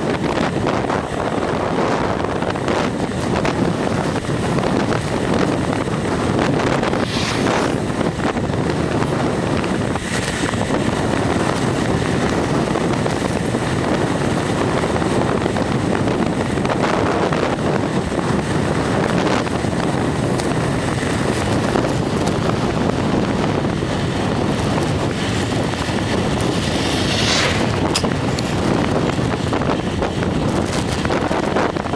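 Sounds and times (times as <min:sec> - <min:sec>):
wind buffeting microphone: 0:00.0 - 0:31.9.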